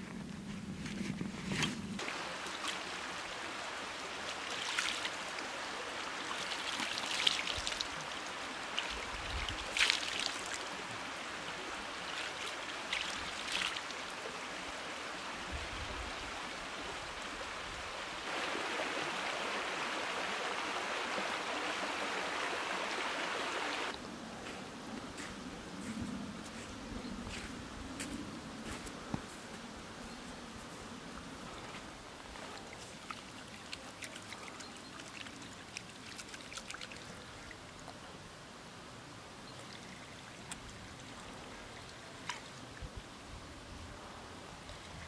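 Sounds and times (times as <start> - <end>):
creek running: 0.4 - 26.7, 28.6 - 45.0
hands splashing water: 8.8 - 10.6.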